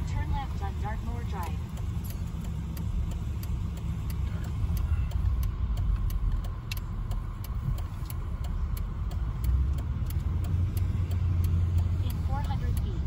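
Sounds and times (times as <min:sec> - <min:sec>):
car engine and road rumble: 0:00.0 - 0:13.0
light steady ticking: 0:00.0 - 0:13.0.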